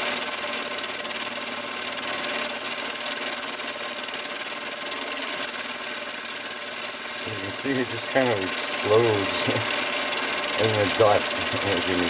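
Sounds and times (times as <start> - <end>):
lathe motor hum: 0.0 - 12.0
tool cutting brass hiss: 5.5 - 11.6.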